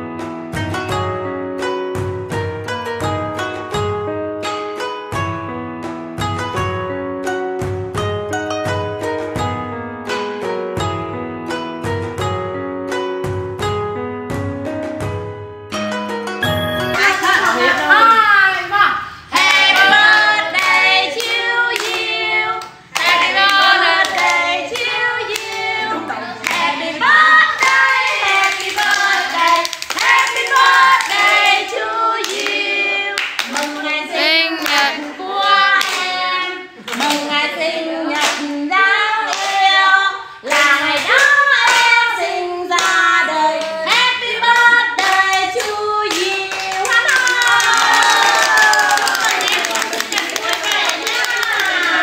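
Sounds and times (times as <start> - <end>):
people singing together: 19.3 - 48.5, 49.2 - 52.0
hands clapping: 19.4 - 25.7, 26.4 - 26.8, 27.6 - 32.6, 33.2 - 33.8, 34.6 - 35.1, 35.7 - 36.2, 36.9 - 37.3, 40.5 - 42.0, 42.7 - 52.0.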